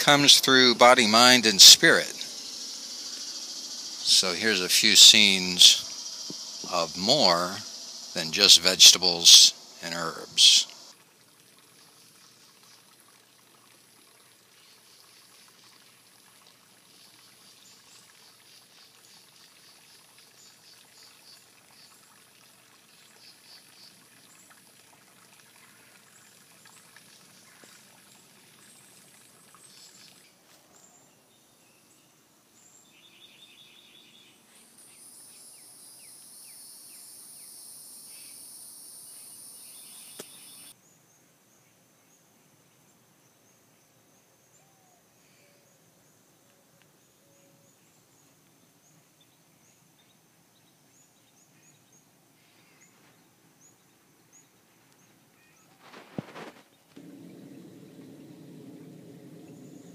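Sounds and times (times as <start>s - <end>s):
high chirps: 0.1s - 10.9s
high-pitched insect buzz: 0.5s - 10.9s, 34.8s - 40.7s.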